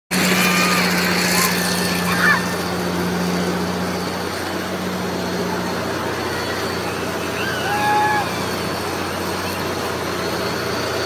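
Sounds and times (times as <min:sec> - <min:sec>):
ride machinery hum and rushing: 0:00.1 - 0:11.0
faint cry: 0:07.3 - 0:08.4.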